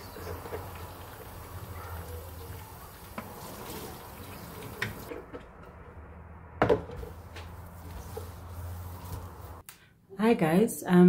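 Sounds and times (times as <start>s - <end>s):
tap water running into sink: 0.0s - 5.1s.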